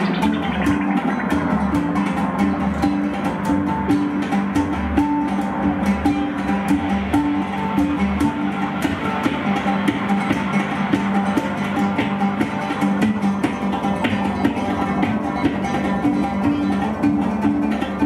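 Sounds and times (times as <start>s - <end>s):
synthesizer: 0.0s - 3.2s
oud plucked: 0.0s - 18.0s.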